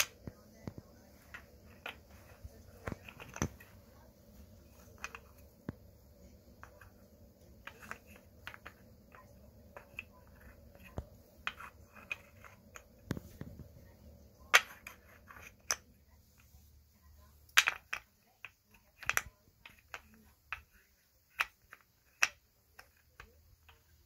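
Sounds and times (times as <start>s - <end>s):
wooden pieces clacking: 1.3s - 3.8s, 4.7s - 5.5s, 7.5s - 13.3s, 14.5s - 15.9s, 17.5s - 24.0s.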